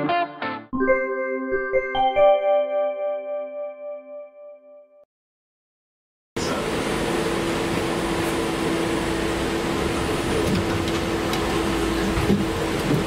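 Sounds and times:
tram interior hum: 6.4 - 13.0
ventilation running: 6.4 - 13.0.

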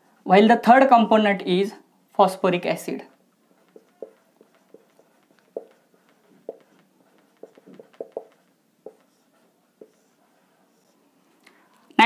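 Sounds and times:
marker pen writing on whiteboard: 3.1 - 11.0.

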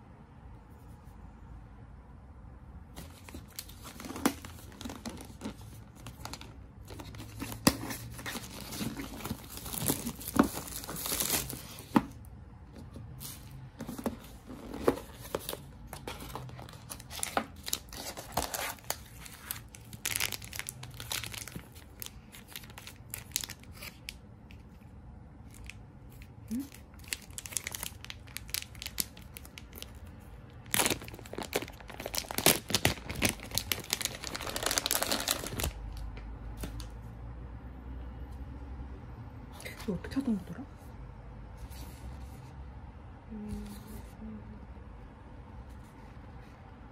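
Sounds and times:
plastic packaging crinkling and tearing: 3.0 - 12.0, 13.2 - 24.7, 25.4 - 36.1.

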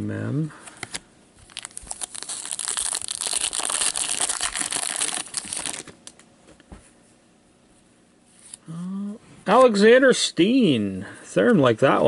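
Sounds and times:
foil wrapper crinkling: 0.9 - 6.2.

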